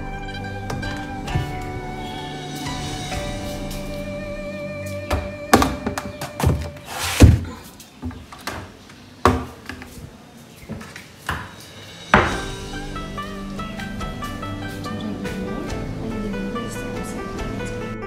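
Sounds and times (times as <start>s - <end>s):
background music: 0.0s - 7.3s, 11.8s - 18.0s.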